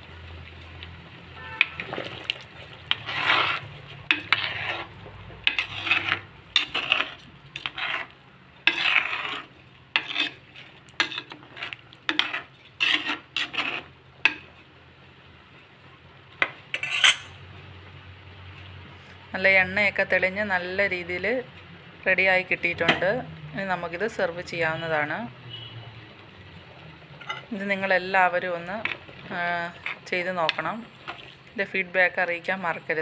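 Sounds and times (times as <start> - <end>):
metal spoon scraping a pot: 1.4 - 14.5, 16.7 - 17.4, 27.2 - 31.4.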